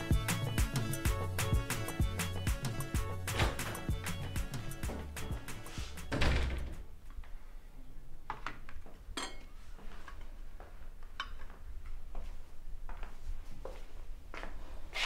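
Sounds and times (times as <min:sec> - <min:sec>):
china cups clinking on table: 0:09.2 - 0:09.5.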